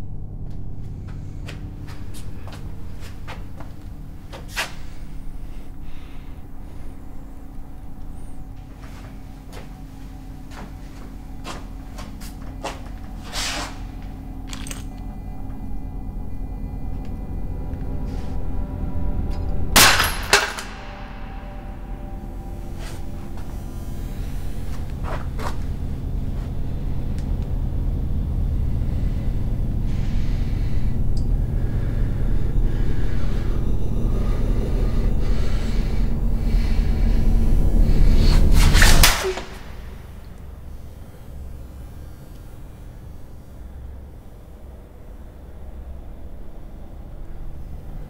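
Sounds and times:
low rumble: 0.0 - 48.0
steady low hum: 0.0 - 48.0
loud sudden hit: 19.8 - 23.4.

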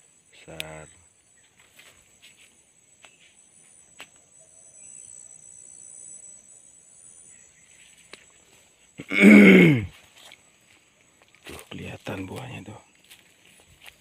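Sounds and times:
rustle of plants: 0.0 - 4.3, 7.6 - 9.1, 9.9 - 14.0
insect drone: 0.0 - 14.0.

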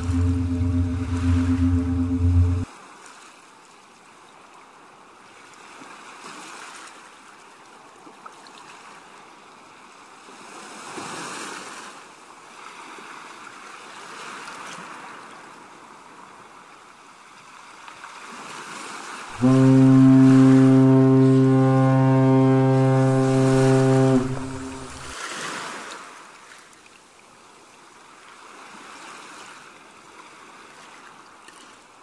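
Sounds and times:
sea waves washing: 0.0 - 2.6, 19.4 - 25.4
ship's horn blast: 0.0 - 2.7, 19.3 - 25.2.

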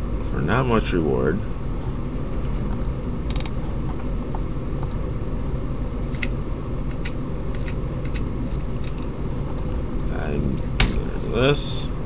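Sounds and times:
low background hum: 0.0 - 12.0
computer mouse clicks: 2.7 - 3.6, 4.8 - 5.0.

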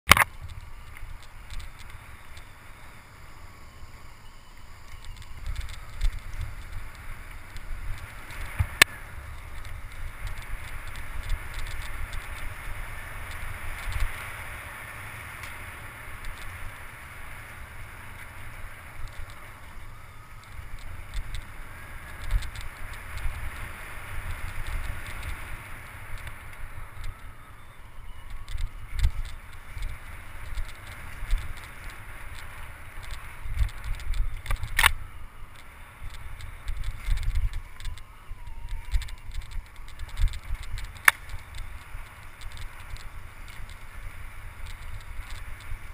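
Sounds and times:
bike rattling over bumps: 0.1 - 45.9
bike tyres on dirt: 0.1 - 45.9
wind buffeting microphone: 0.2 - 45.9.

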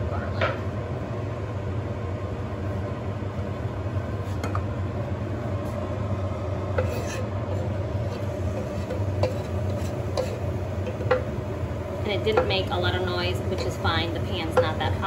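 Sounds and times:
steady low hum: 0.0 - 15.0
garlic sizzling: 5.6 - 15.0
knife scraping cutting board: 6.8 - 10.4.

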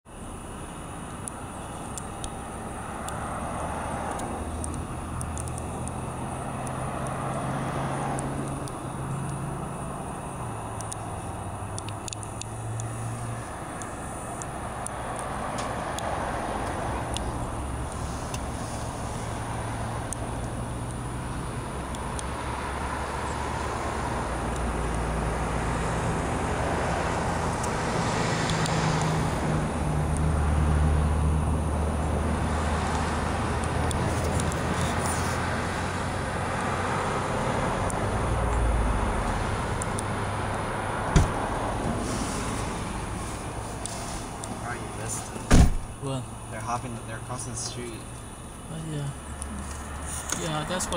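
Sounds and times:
road noise: 0.0 - 50.9
vehicle engine hum: 0.1 - 50.9.

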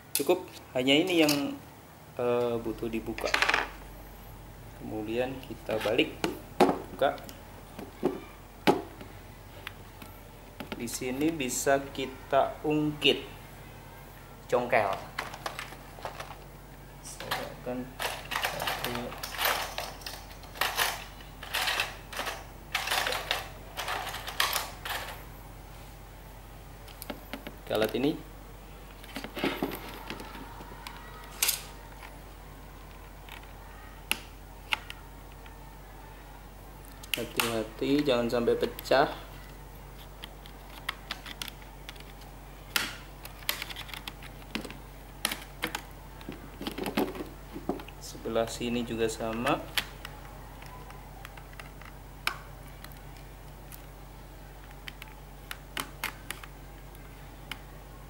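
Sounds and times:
keys rattling: 18.0 - 25.2
keyboard plastic clicks and snaps: 40.0 - 47.1, 54.6 - 57.6.

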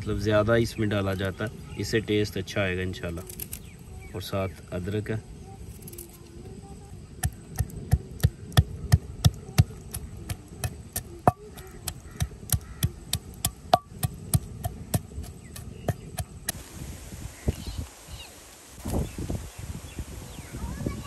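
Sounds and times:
pestle pounding thuds: 7.2 - 16.6
sharp ringing knocks: 13.4 - 14.8.

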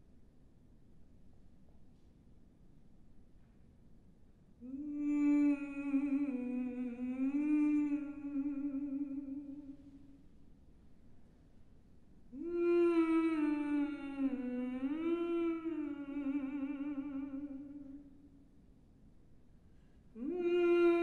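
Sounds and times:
woman humming: 4.6 - 10.2, 12.3 - 18.3, 20.2 - 21.0.

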